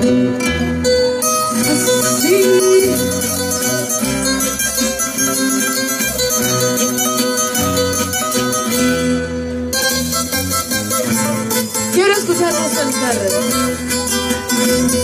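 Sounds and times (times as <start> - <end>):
live band playing a waltz: 0.0 - 15.0.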